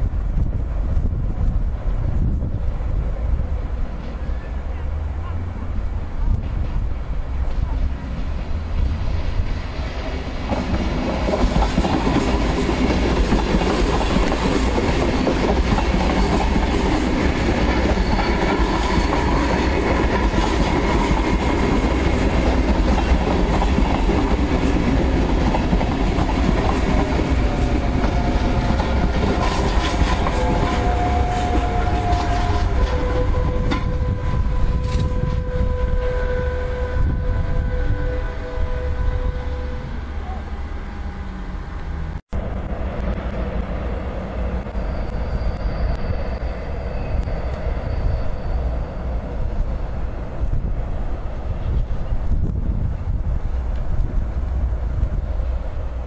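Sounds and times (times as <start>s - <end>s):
train rumbling past: 0.0s - 56.0s
wheels clacking over rail joints: 10.4s - 34.2s.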